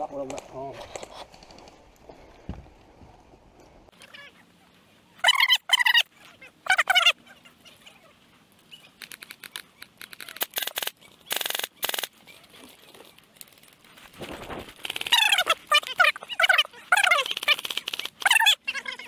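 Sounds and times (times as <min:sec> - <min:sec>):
airsoft rifles firing bursts: 0:10.4 - 0:12.1.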